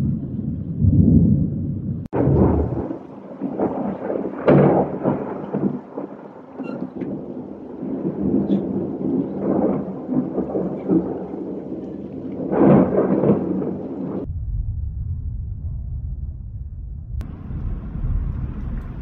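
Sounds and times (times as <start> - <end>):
thunder rolling and rumbling: 0.0 - 19.0
heavy rain: 2.0 - 14.3, 17.2 - 19.0.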